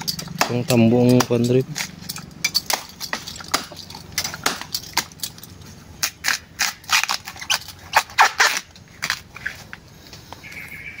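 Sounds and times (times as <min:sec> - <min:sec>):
knife chopping bamboo: 0:00.0 - 0:02.0, 0:02.6 - 0:05.2.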